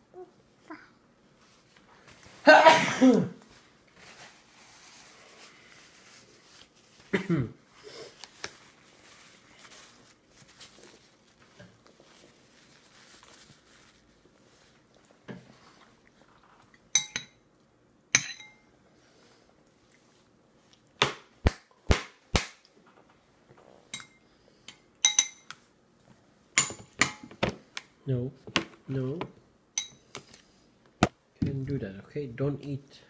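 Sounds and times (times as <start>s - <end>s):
spoon clinking on bowl: 17.0s - 17.4s, 18.2s - 18.6s, 23.9s - 25.5s, 29.8s - 30.0s.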